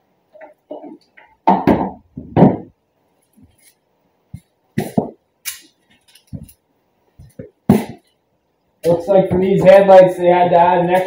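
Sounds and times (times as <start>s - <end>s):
loud thump: 1.5s - 2.7s, 7.7s - 8.0s
knocks and rustles of handling: 5.8s - 6.6s.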